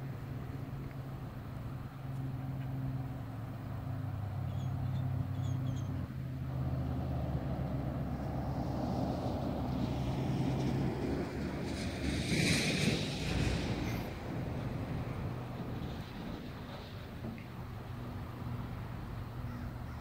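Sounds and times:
vehicle engine humming: 0.0s - 20.0s
broad rushing noise: 6.5s - 19.4s.

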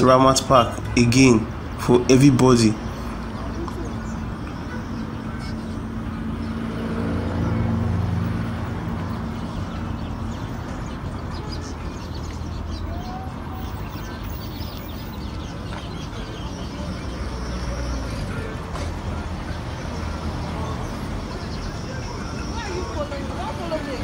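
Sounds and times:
road noise: 0.0s - 24.0s.

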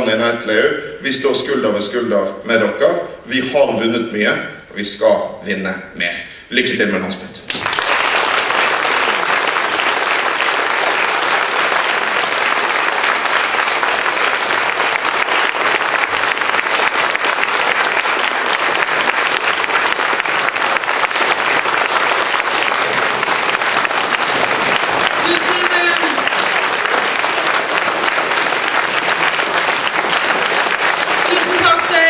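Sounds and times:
audience applauding: 7.5s - 32.0s.

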